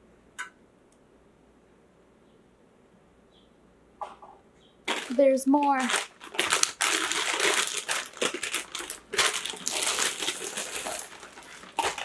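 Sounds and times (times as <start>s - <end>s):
plastic packaging crinkling: 4.9s - 12.0s.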